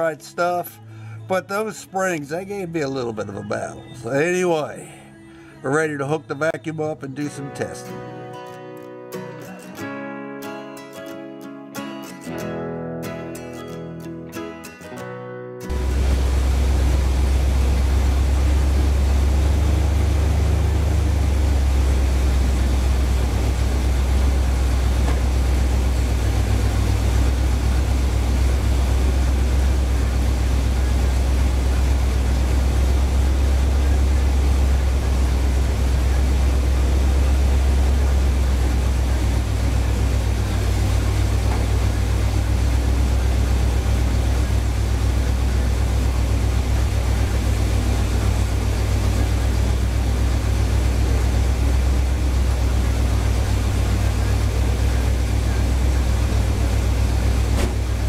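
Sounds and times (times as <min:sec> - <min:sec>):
car engine idling: 0:15.7 - 0:58.0.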